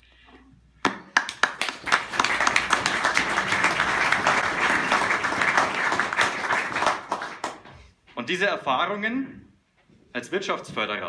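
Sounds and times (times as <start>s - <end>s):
audience applause: 1.2s - 7.7s.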